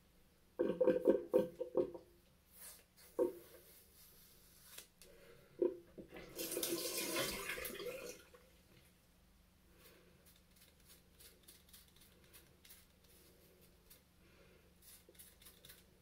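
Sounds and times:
razor scraping scalp: 10.2 - 14.0, 14.8 - 16.0.

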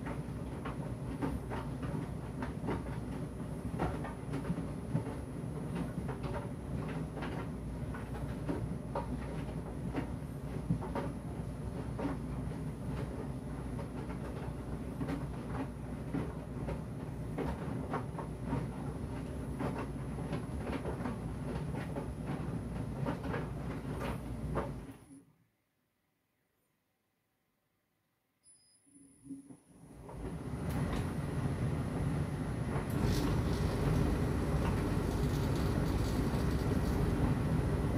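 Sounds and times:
tumble dryer drum humming: 30.0 - 37.9.

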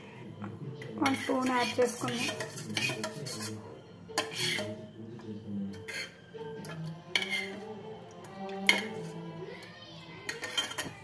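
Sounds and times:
faint music: 0.0 - 11.0
metal spoon clinking in steel bowl: 1.0 - 4.8, 5.7 - 7.8, 8.5 - 9.2, 10.2 - 11.0.

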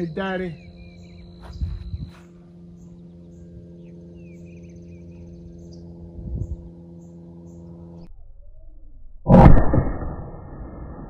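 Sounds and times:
birds chirping: 0.0 - 8.0
steady low hum: 0.0 - 11.0.

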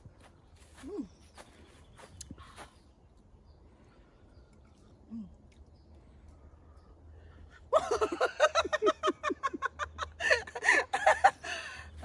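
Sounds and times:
woman laughing: 7.7 - 11.9.

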